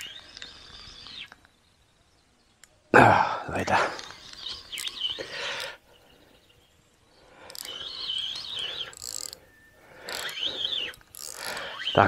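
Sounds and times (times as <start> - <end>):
fishing reel buzzing: 7.4 - 12.0.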